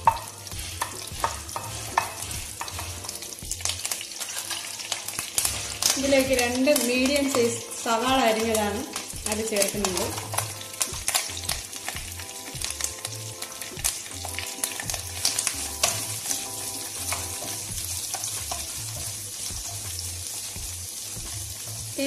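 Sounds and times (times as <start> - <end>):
wooden spatula scraping a pan: 0.0 - 3.2, 14.3 - 20.6
onions sizzling in a pan: 0.0 - 22.0.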